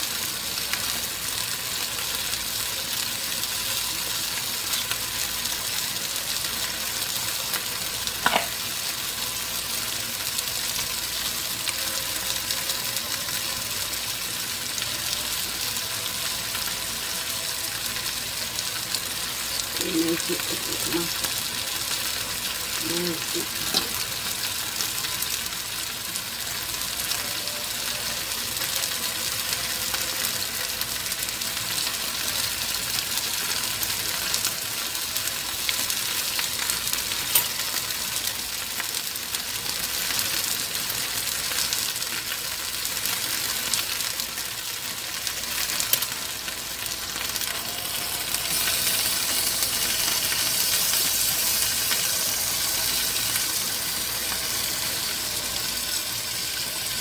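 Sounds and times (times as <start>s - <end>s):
stew bubbling and sizzling: 0.0s - 57.0s
utensil clicking against pan: 8.2s - 8.5s.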